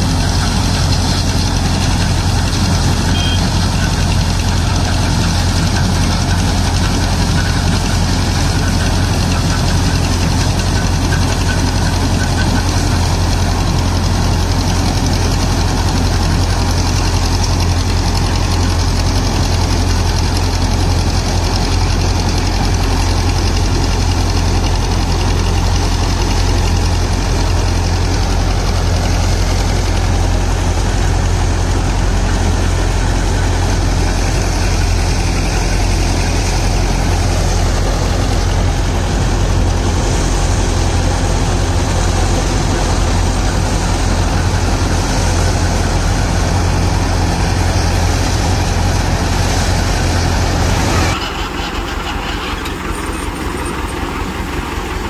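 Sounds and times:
harvester machinery noise: 0:00.0 - 0:55.0
tractor diesel engine running: 0:00.0 - 0:55.0.

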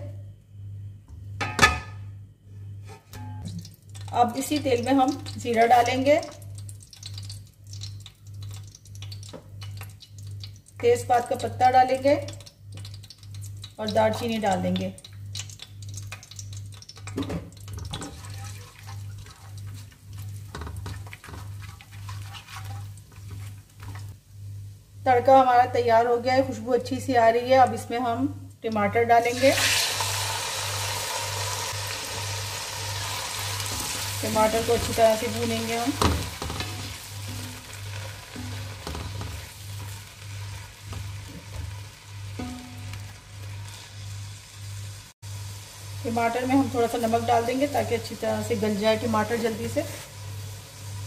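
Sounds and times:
spices sizzling in hot oil: 0:03.4 - 0:28.1, 0:28.7 - 0:51.0
spatula scraping metal pan: 0:21.2 - 0:24.0.

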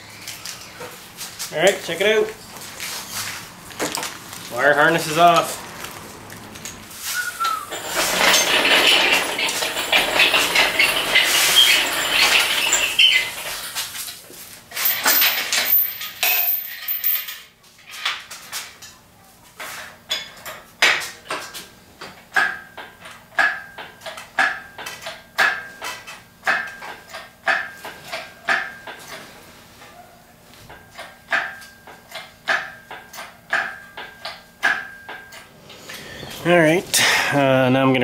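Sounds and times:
chain clinking and rattling: 0:07.5 - 0:14.0, 0:14.7 - 0:18.0.

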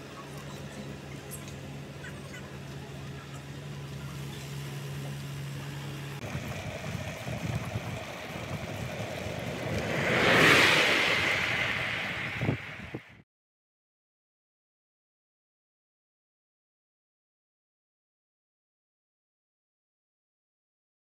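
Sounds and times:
low hum: 0:03.6 - 0:13.2
wind buffeting microphone: 0:06.2 - 0:13.2.

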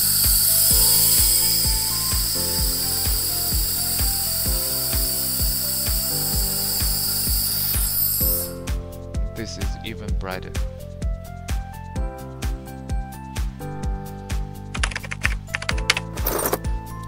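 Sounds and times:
laser welder hissing: 0:00.0 - 0:08.6
background music with steady beat: 0:00.0 - 0:17.0.

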